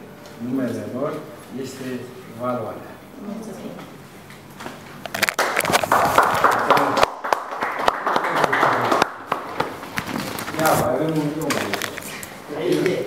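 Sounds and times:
audience applauding: 0:05.2 - 0:09.9.

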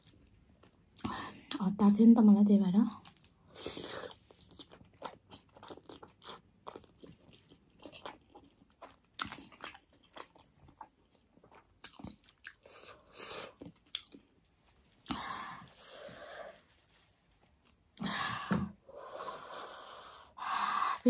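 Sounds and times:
chewing mouth clicks and smacks: 0:04.3 - 0:12.9, 0:13.6 - 0:14.4
breathy sound: 0:18.0 - 0:21.0.

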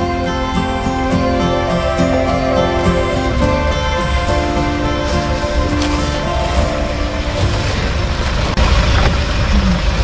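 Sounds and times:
soft instrumental music: 0:00.0 - 0:08.6.

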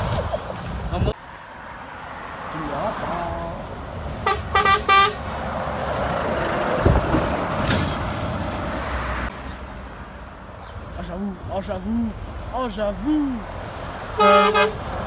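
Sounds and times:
truck passing close by: 0:00.0 - 0:10.5, 0:13.4 - 0:15.0
truck horn blasts: 0:04.2 - 0:05.2, 0:14.2 - 0:14.8.

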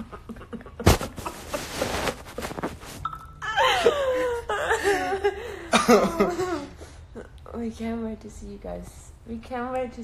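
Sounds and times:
two people laughing: 0:00.0 - 0:02.6, 0:03.4 - 0:06.8.

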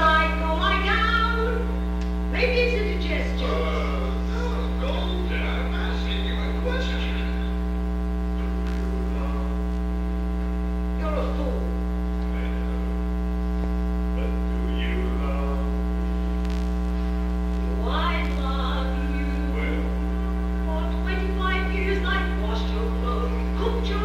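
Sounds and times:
electrical mains hum: 0:00.0 - 0:24.0.

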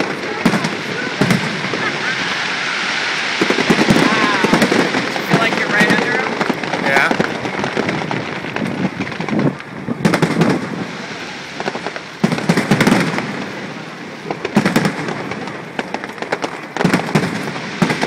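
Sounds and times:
fireworks bangs and crackles: 0:00.0 - 0:18.0.

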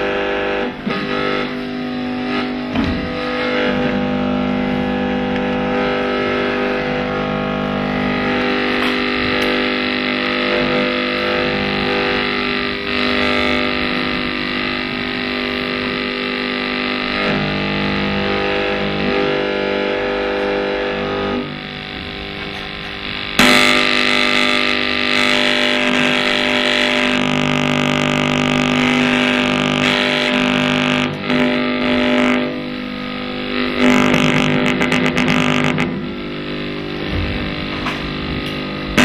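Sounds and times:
distorted drone music: 0:00.0 - 0:39.0.

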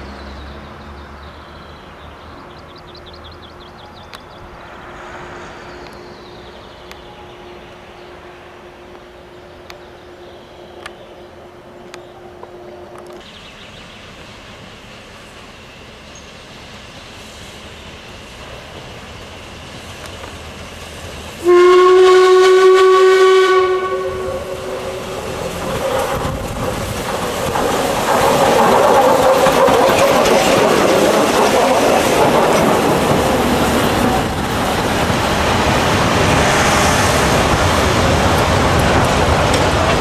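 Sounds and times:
train running past: 0:00.1 - 0:40.0
steam locomotive whistle: 0:21.4 - 0:25.4.

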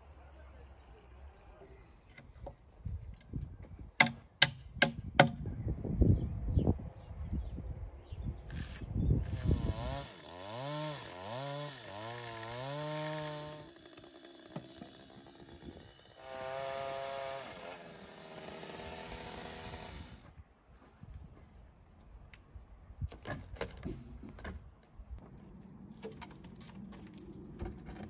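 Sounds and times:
chainsaw revving: 0:09.2 - 0:20.2.

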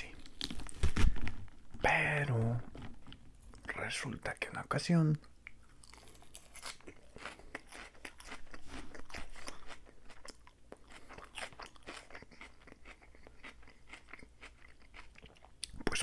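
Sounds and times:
chewing crunchy salad: 0:05.2 - 0:16.0.

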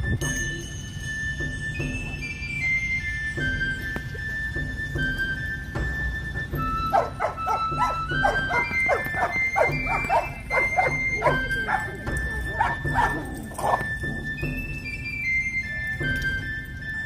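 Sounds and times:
background music: 0:00.0 - 0:17.0
dog barking: 0:06.9 - 0:11.9, 0:12.6 - 0:13.9.

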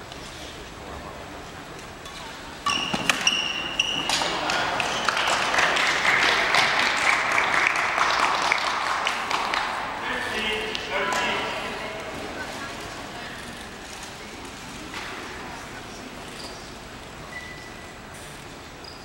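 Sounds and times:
sneakers squeaking on gym floor: 0:02.6 - 0:05.2, 0:17.3 - 0:17.9
racket hitting shuttlecock: 0:02.6 - 0:05.3
crowd cheering and applause: 0:04.3 - 0:10.2.

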